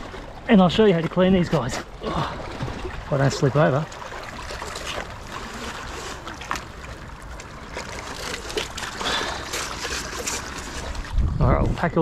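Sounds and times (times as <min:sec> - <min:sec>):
seawater lapping among rocks: 0:00.0 - 0:12.0
wind rumble on microphone: 0:10.6 - 0:12.0.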